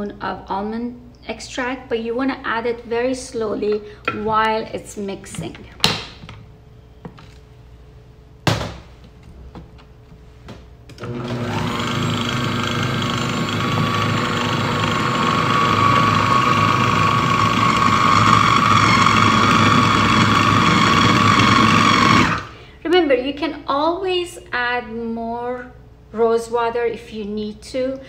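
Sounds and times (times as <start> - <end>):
food processor motor whining: 10.9 - 22.6.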